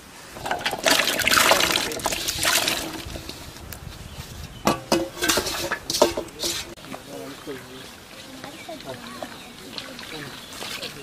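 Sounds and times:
potatoes splashing into water: 0:00.4 - 0:03.1.

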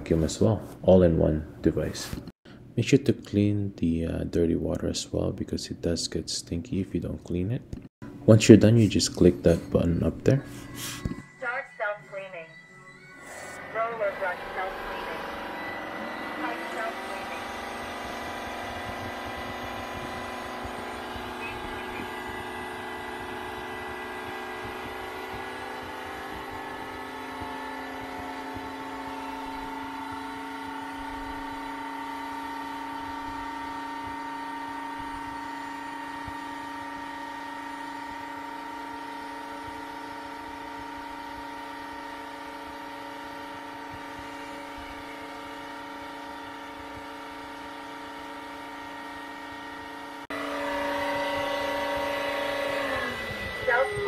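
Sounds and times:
vacuum motor drone: 0:13.0 - 0:54.0.

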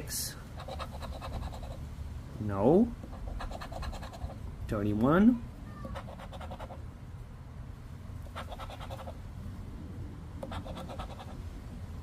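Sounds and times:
scratching lottery ticket coating: 0:00.6 - 0:01.8, 0:03.1 - 0:04.4, 0:05.9 - 0:06.8, 0:08.3 - 0:09.2, 0:10.4 - 0:11.4.

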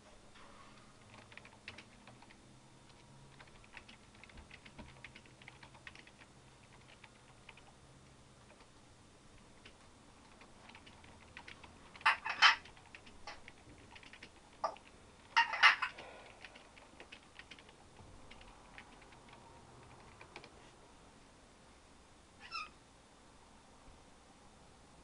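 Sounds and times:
parrot clicking: 0:01.0 - 0:07.8, 0:09.4 - 0:20.6
parrot calling: 0:12.0 - 0:12.6, 0:15.4 - 0:16.0, 0:22.4 - 0:22.8
parrot chirp: 0:22.4 - 0:22.8.

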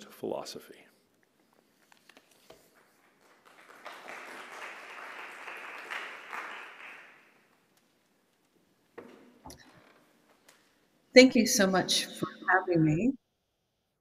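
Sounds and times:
audience applauding: 0:02.6 - 0:07.7.

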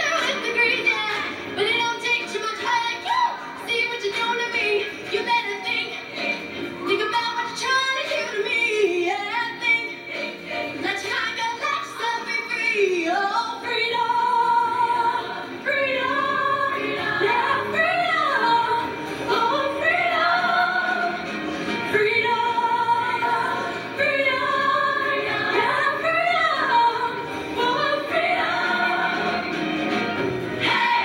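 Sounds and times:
choir singing: 0:09.8 - 0:11.4, 0:12.9 - 0:31.0.

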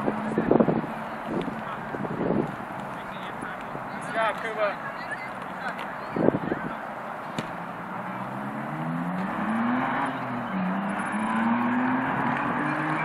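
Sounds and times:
vehicle engine accelerating: 0:07.5 - 0:13.0.

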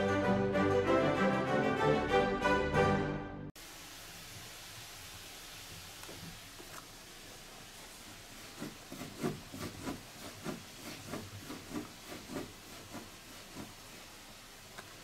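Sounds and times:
hand scratching rope post: 0:08.4 - 0:13.9.

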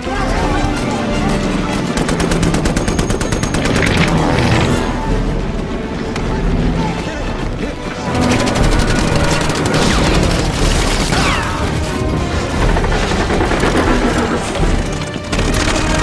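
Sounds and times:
film music: 0:00.0 - 0:16.0
machine-gun fire: 0:01.8 - 0:04.7, 0:08.1 - 0:11.6, 0:15.3 - 0:16.0.

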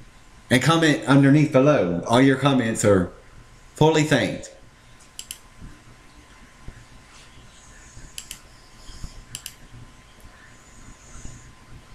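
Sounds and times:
room hiss: 0:00.0 - 0:11.9
thin steady whine: 0:00.0 - 0:11.9
computer mouse clicks: 0:05.0 - 0:05.4, 0:08.0 - 0:10.4.

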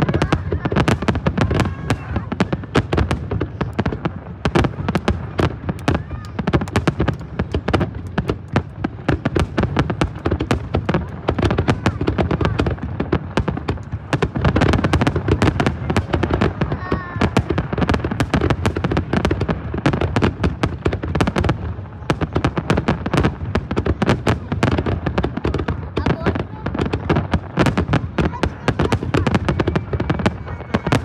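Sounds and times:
fireworks bursting and crackling: 0:00.0 - 0:31.0.

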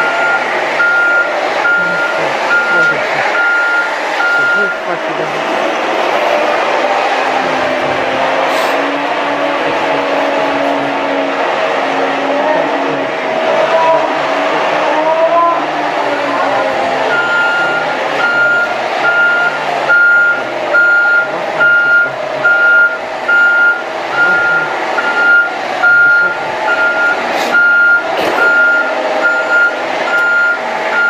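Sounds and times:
reversing alarm beeping: 0:00.0 - 0:05.2, 0:16.9 - 0:31.0
telehandler engine under load: 0:00.0 - 0:31.0.

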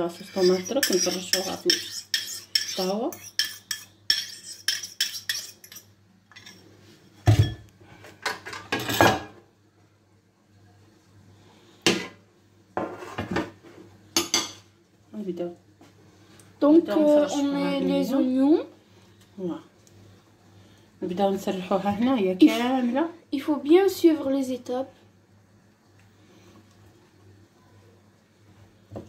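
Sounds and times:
metal spoon scraping bowl: 0:00.0 - 0:06.6
dishes thudding and clattering: 0:07.2 - 0:09.4.

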